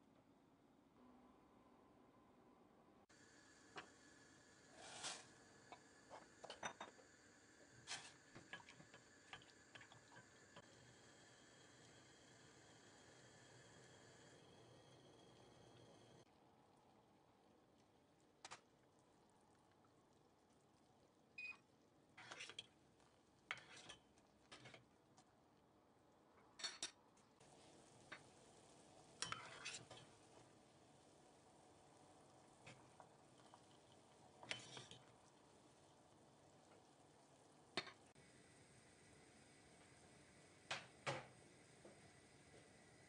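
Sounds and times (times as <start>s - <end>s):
spatula scraping pot: 22.2s - 22.7s, 23.5s - 24.9s, 29.2s - 30.2s, 34.4s - 35.1s.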